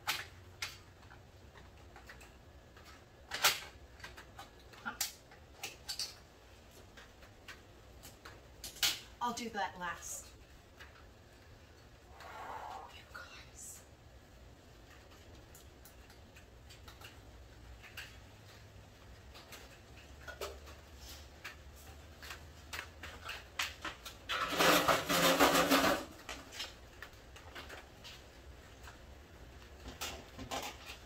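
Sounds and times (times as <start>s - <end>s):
stepladder scraping on concrete: 20.6s - 28.2s.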